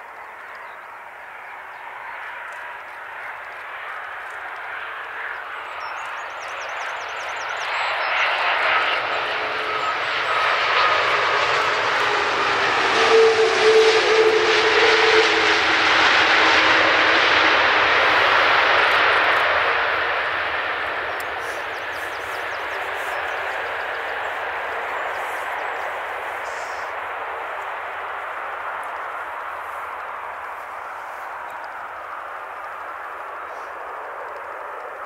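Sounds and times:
jet engines passing by: 0.0 - 35.0.

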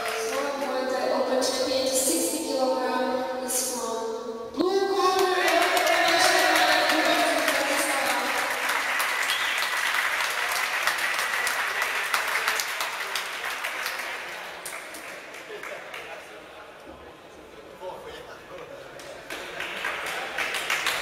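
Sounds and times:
crowd clapping and cheering: 0.0 - 0.8, 5.0 - 16.4, 19.0 - 21.0
long held cheer: 5.1 - 13.2.

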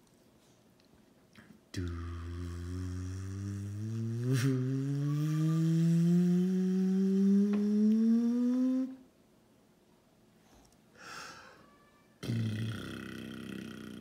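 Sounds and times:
person humming rising buzzing note: 1.8 - 9.1, 12.2 - 14.0.

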